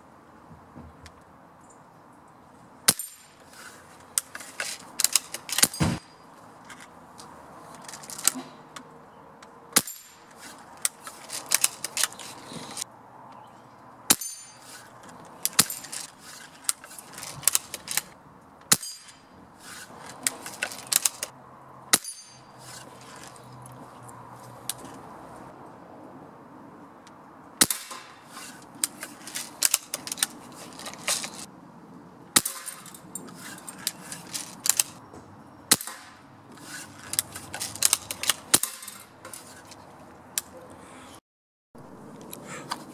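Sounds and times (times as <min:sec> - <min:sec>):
pellets clanging on steel targets: 0:02.9 - 0:03.4, 0:04.4 - 0:06.3, 0:09.8 - 0:10.3, 0:14.1 - 0:14.9, 0:15.5 - 0:16.1, 0:18.7 - 0:19.3, 0:21.9 - 0:22.8, 0:37.6 - 0:39.1
pellet gun shots: 0:27.6 - 0:28.2, 0:35.7 - 0:36.2.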